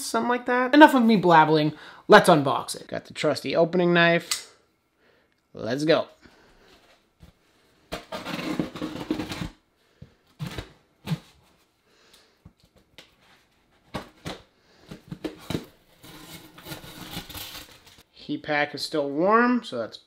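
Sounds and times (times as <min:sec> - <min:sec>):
knife cutting packing tape: 0:15.5 - 0:18.0.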